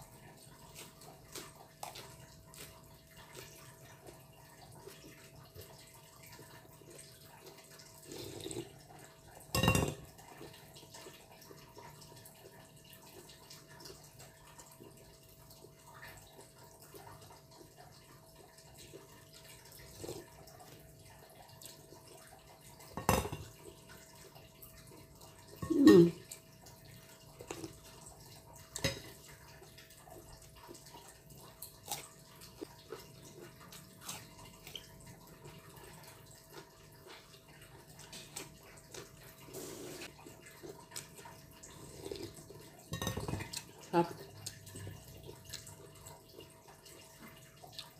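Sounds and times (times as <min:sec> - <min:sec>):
slurping soup: 0:07.9 - 0:08.8, 0:39.4 - 0:40.2
spoon clinking on glass bowl: 0:09.5 - 0:10.0, 0:42.9 - 0:43.4.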